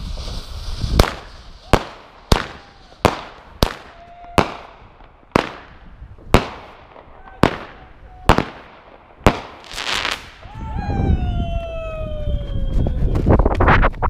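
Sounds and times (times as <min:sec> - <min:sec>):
firework sparks hissing: 0:00.0 - 0:04.0, 0:09.3 - 0:10.4
firework bangs echoing: 0:00.0 - 0:10.4.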